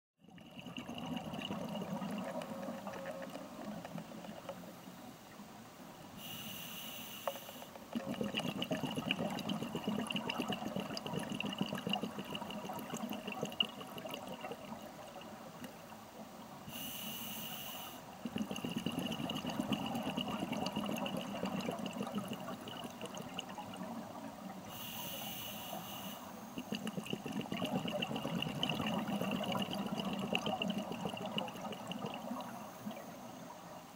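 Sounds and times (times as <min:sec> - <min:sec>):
faint high whine: 0:01.4 - 0:08.1, 0:14.3 - 0:20.6, 0:22.0 - 0:27.9, 0:28.8 - 0:33.9
underwater regulator breathing: 0:06.2 - 0:09.0, 0:16.7 - 0:20.3, 0:24.6 - 0:28.1.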